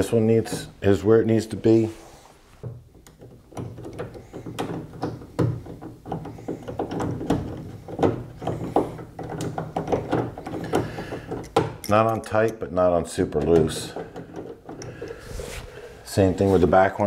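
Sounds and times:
rubbing of rubber seal: 0:00.0 - 0:11.9, 0:13.4 - 0:16.8.

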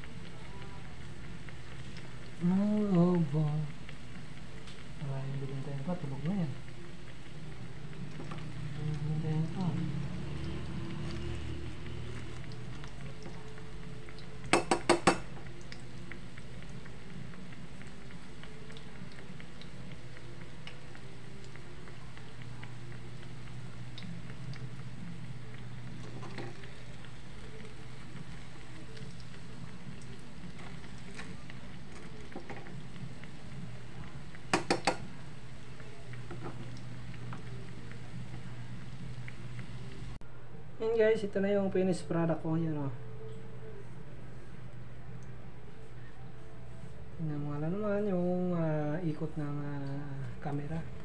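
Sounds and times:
oil sizzling and crackling: 0:00.0 - 0:40.2.

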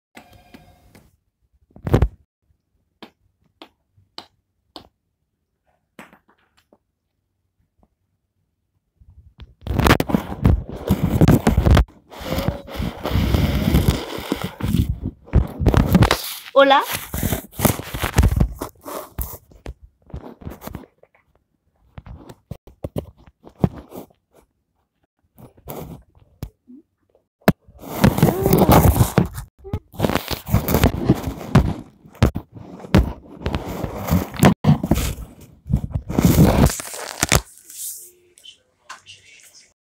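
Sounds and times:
paper and plastic crinkling: 0:13.7 - 0:18.8, 0:33.4 - 0:38.1.

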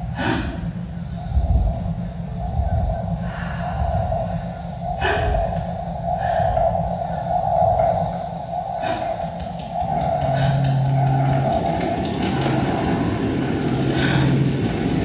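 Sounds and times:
droning tone: 0:00.0 - 0:15.0
low rumble: 0:00.0 - 0:15.0
person gasping: 0:00.2 - 0:00.7, 0:05.0 - 0:05.5.

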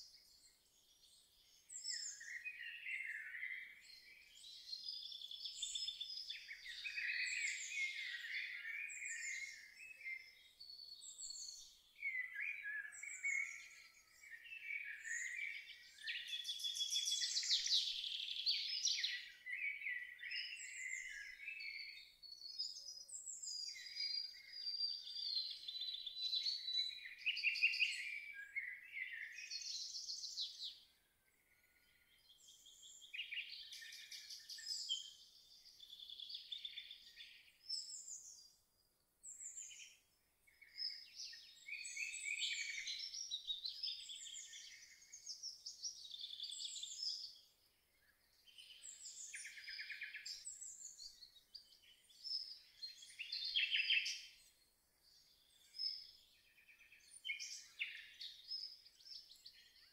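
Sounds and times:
songbirds singing: 0:00.0 - 0:59.9.

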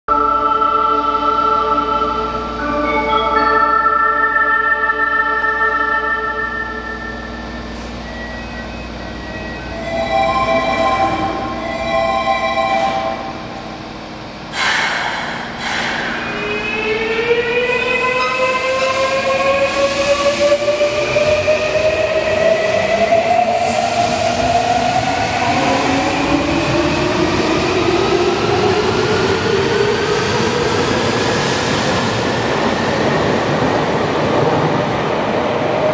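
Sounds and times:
train running noise: 0:05.3 - 0:35.9
air brake hisses: 0:14.5 - 0:16.3.

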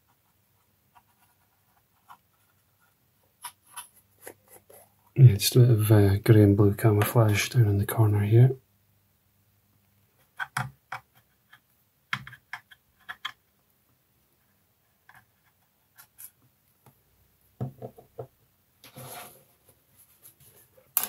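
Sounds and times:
scratchy rub: 0:18.8 - 0:20.8.

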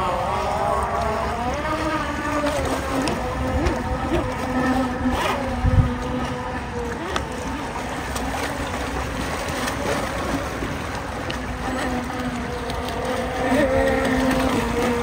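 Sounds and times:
electric motor whine: 0:00.0 - 0:15.0
wind buffeting microphone: 0:03.2 - 0:06.7.

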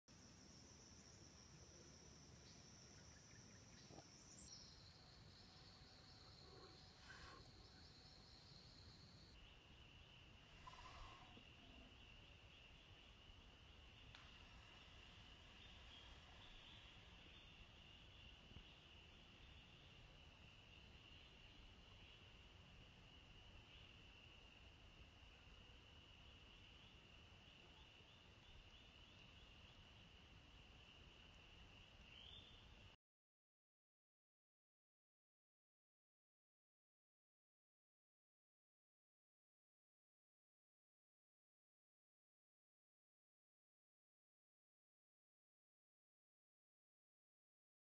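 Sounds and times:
insects trilling: 0:00.1 - 0:32.6
low outdoor hum: 0:00.1 - 0:33.0.

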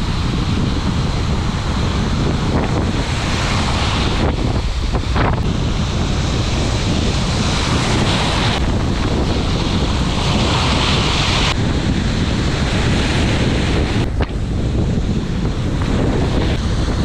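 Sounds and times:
sea surf breaking: 0:00.0 - 0:17.0
wind buffeting microphone: 0:00.0 - 0:17.0.

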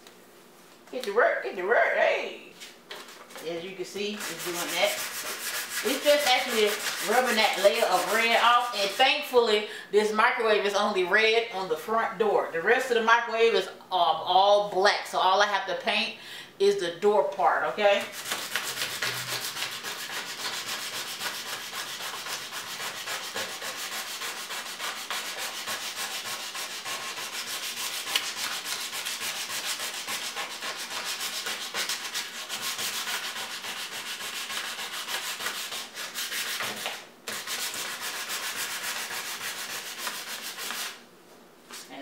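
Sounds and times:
sandpaper scraping: 0:04.1 - 0:09.2, 0:18.1 - 0:41.0.

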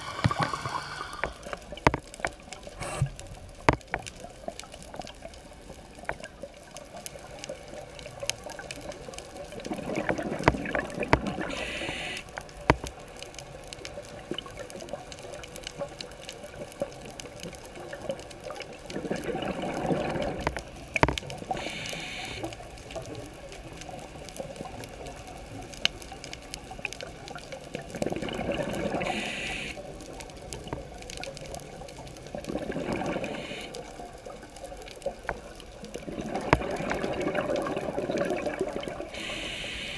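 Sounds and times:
regulator inhale hiss: 0:00.0 - 0:01.7, 0:02.8 - 0:03.2, 0:11.5 - 0:12.3, 0:21.5 - 0:22.6, 0:29.0 - 0:29.8, 0:33.2 - 0:33.9, 0:39.1 - 0:39.9
bubbling exhale underwater: 0:00.0 - 0:01.8, 0:09.6 - 0:12.2, 0:18.5 - 0:20.5, 0:27.8 - 0:29.8, 0:32.3 - 0:34.0, 0:35.9 - 0:39.9.

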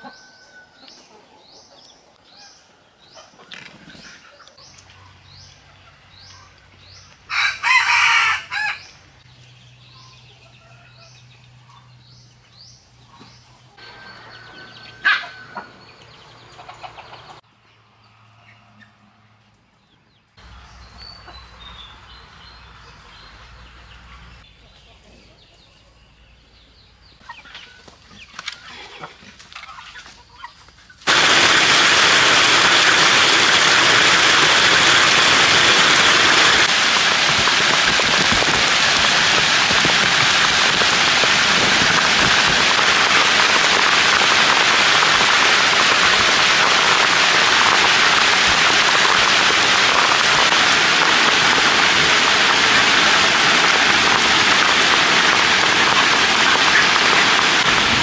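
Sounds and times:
heavy rain pouring: 0:31.1 - 0:58.0.

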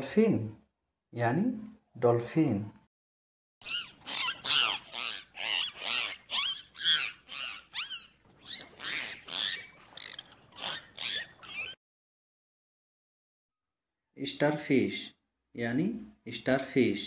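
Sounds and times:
dolphins whistling: 0:03.6 - 0:11.8.

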